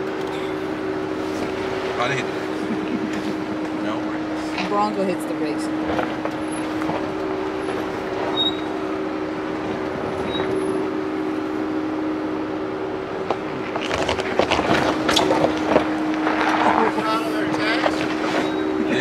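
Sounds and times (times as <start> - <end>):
engine hum: 0.0 - 19.0
tyres on gravel: 13.0 - 19.0.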